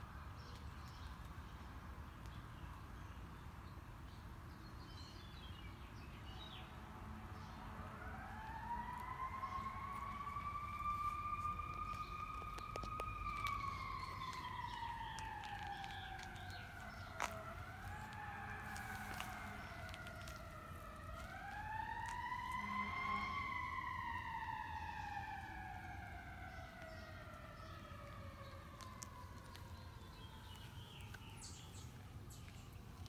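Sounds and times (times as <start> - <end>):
siren wailing: 6.9 - 32.1.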